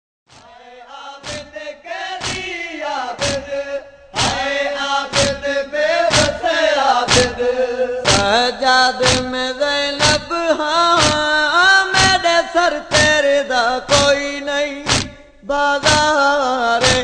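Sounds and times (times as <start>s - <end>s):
men chanting: 0.4s - 17.0s
chest-beating strokes: 2.2s - 8.3s, 14.9s - 15.3s.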